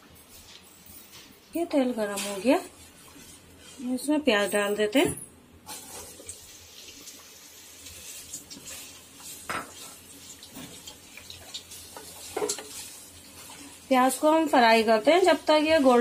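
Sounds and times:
onions sizzling in oil: 5.6s - 16.0s
spatula knocking and scraping: 11.9s - 13.5s.

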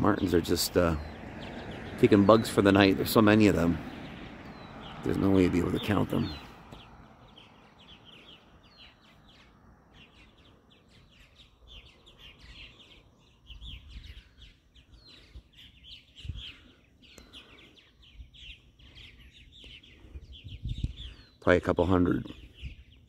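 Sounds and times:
low rumbles: 0.0s - 10.6s
birds chirping: 0.0s - 23.0s.

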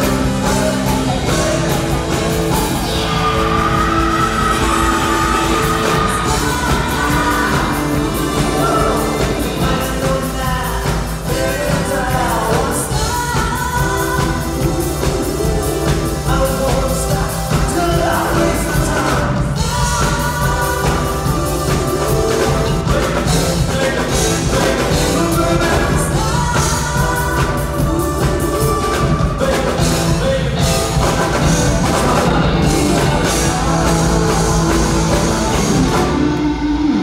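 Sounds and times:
live pop-rock band playing: 0.0s - 37.0s
person singing: 0.0s - 37.0s.

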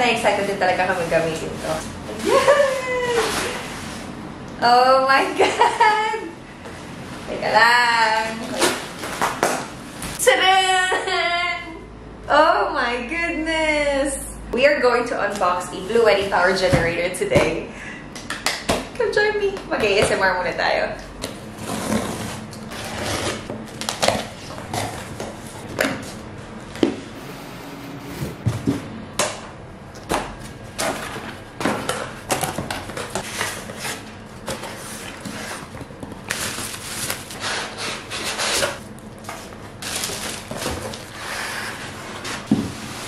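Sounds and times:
paper packing rustling: 30.0s - 43.0s.

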